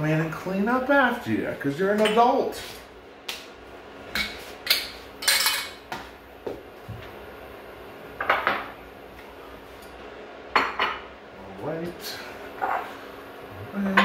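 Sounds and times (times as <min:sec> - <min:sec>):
dishes and cutlery clattering: 0:05.2 - 0:05.8.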